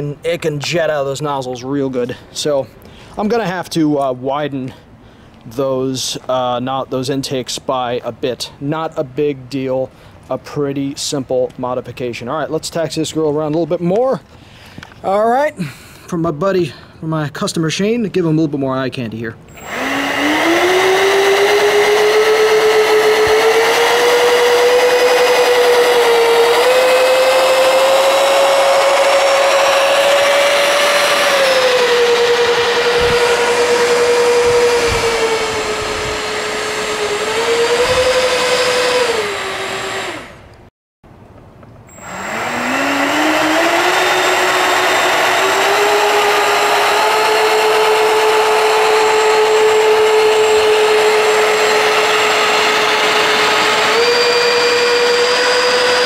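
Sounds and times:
electric ducted fans whining: 19.4s - 40.7s, 41.3s - 56.0s.

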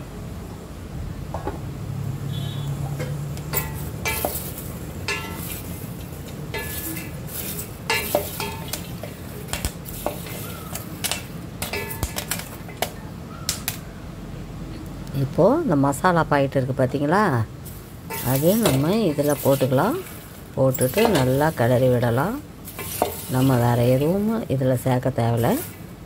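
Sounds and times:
spatula knocking and scraping pot: 3.0s - 12.9s, 18.1s - 24.3s.

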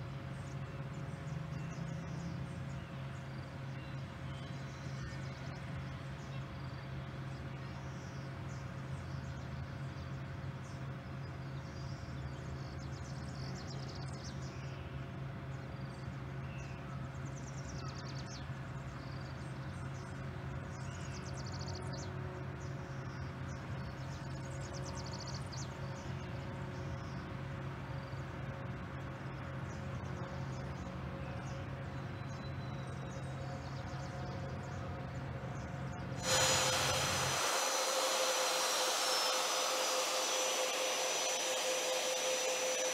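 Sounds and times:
high-pitched jet whine and hiss: 36.2s - 42.9s
jet engines rumbling: 36.2s - 42.9s.

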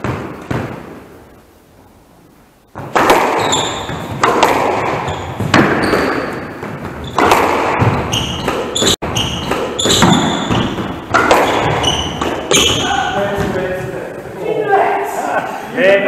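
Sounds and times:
squash ball hits echoing: 0.0s - 1.0s, 2.7s - 13.8s
shoes squeaking on wooden floor: 2.8s - 13.9s.

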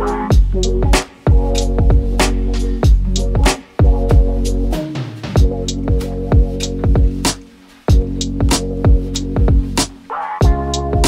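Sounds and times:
held bass notes: 0.0s - 11.0s
kick drums: 0.3s - 2.2s, 2.8s - 4.4s, 5.4s - 11.0s.

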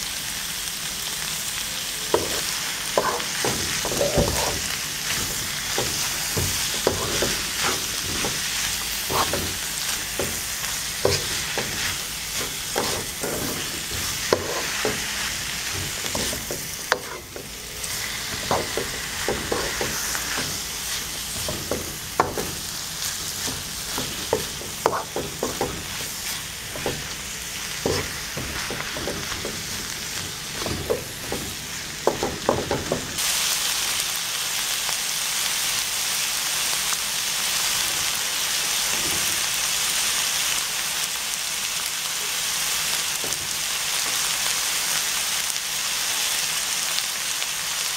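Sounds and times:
food sizzling in a wok: 0.0s - 47.9s
spatula scraping and knocking pan: 2.1s - 33.2s.

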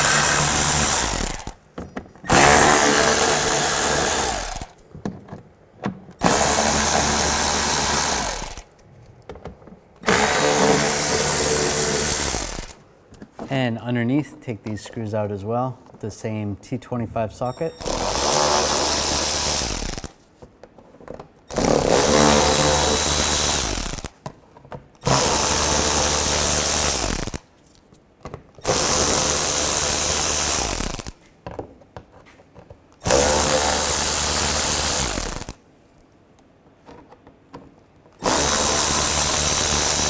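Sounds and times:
electric ratchet spinning: 0.0s - 1.6s, 2.3s - 4.8s, 6.2s - 8.7s, 10.0s - 12.8s, 17.8s - 20.2s, 21.5s - 24.2s, 25.0s - 27.4s, 28.6s - 31.2s, 33.0s - 35.6s, 38.2s - 40.0s.

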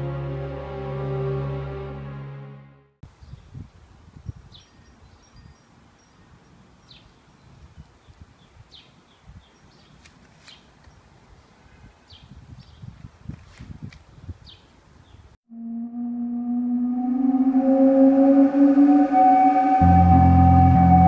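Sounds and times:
small birds chirping: 3.1s - 13.1s, 14.0s - 15.4s.

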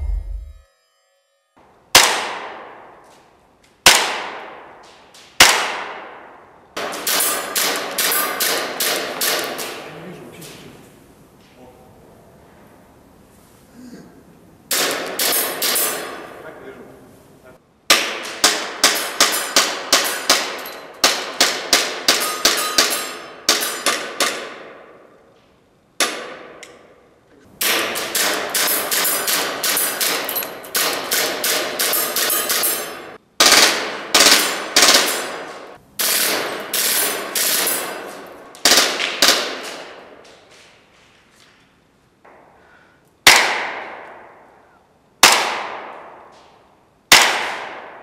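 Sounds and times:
airsoft pistol shots: 1.9s - 2.8s, 3.8s - 4.7s, 5.4s - 9.8s, 14.7s - 16.1s, 43.2s - 44.3s, 45.2s - 46.2s, 47.1s - 48.0s
rapid burst of shots: 33.4s - 35.4s.

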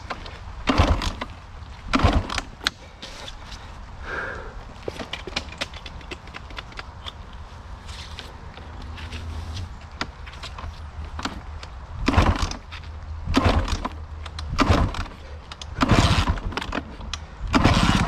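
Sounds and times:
motorcycle kick-start attempts: 0.0s - 1.3s, 1.9s - 3.2s, 4.8s - 7.2s, 9.9s - 12.7s, 13.3s - 18.0s.

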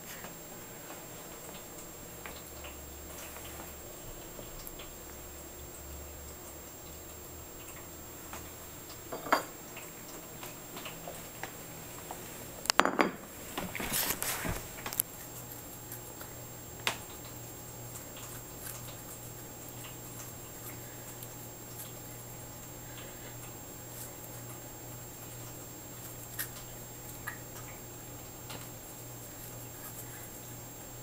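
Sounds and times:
cat crunching food: 13.8s - 27.9s.

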